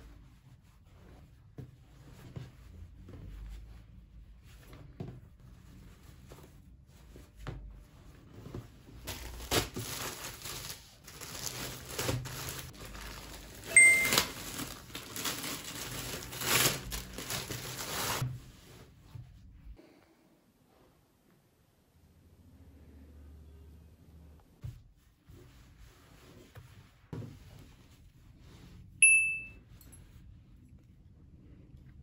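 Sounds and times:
faint soft rustling: 0:00.0 - 0:13.7, 0:24.6 - 0:29.0
plastic bag crinkling: 0:09.1 - 0:18.2.

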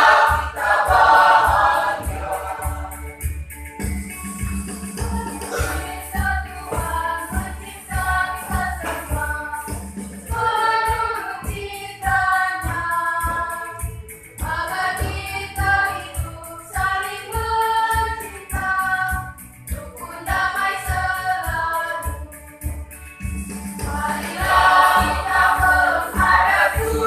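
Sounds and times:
mixed choir singing: 0:00.0 - 0:03.1, 0:05.1 - 0:09.7, 0:10.3 - 0:13.5, 0:23.9 - 0:27.0.

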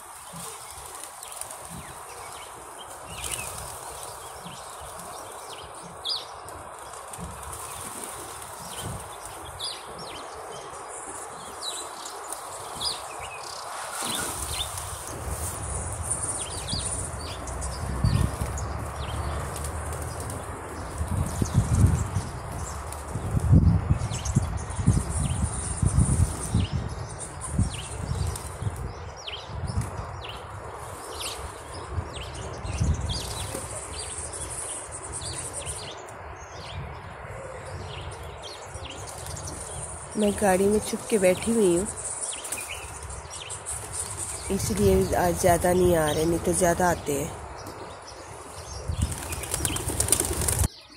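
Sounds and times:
outdoor background hiss: 0:00.0 - 0:50.9
small birds chirping: 0:00.0 - 0:50.9
pigeon wings flapping: 0:49.0 - 0:50.7.

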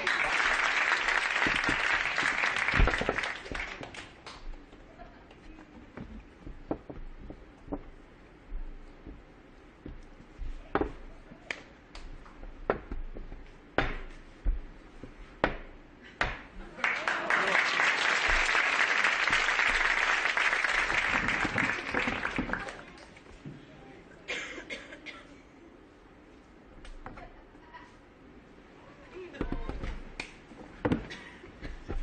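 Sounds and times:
audience applauding: 0:00.0 - 0:04.6, 0:16.7 - 0:23.2
balls and cups knocking on table: 0:02.7 - 0:03.6, 0:10.7 - 0:11.1.

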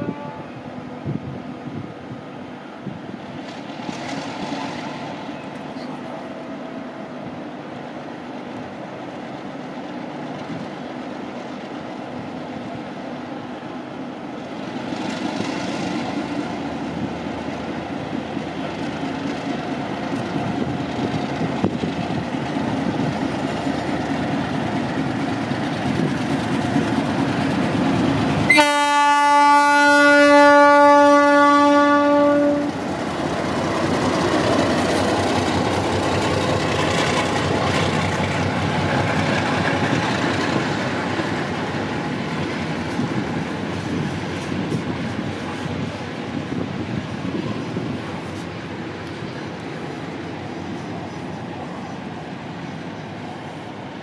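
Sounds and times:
locomotive horn blast: 0:00.0 - 0:00.6, 0:28.5 - 0:32.8
diesel locomotive engine: 0:00.0 - 0:54.0
train wheels clattering on rails: 0:03.3 - 0:06.1, 0:14.6 - 0:28.7, 0:32.7 - 0:53.1.

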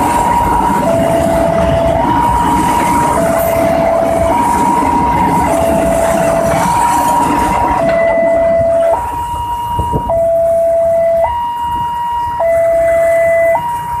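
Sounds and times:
freight train rumble: 0:00.0 - 0:14.0
two-tone level crossing alarm: 0:00.0 - 0:14.0.

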